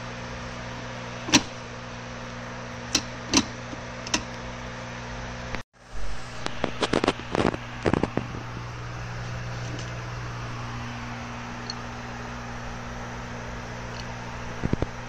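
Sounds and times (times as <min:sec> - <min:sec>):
steady low hum: 0:00.0 - 0:15.0
gear lever metallic clicks: 0:02.9 - 0:04.4.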